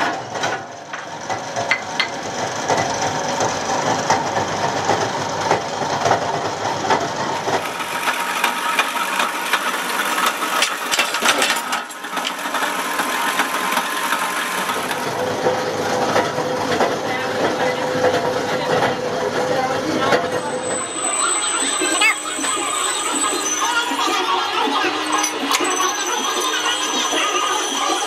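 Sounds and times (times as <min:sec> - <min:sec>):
workshop machinery running: 0:00.0 - 0:28.0
metallic knocks and clatter: 0:10.5 - 0:12.4.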